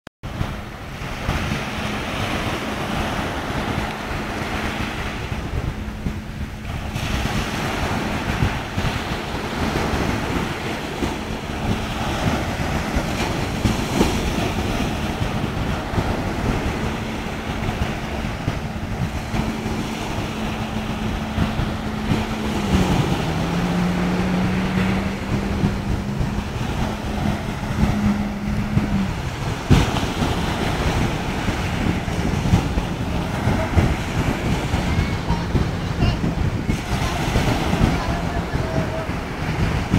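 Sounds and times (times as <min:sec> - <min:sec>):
jet ski engine drone: 0:00.2 - 0:39.9
surf breaking: 0:00.2 - 0:39.9
wind buffeting microphone: 0:00.2 - 0:39.9.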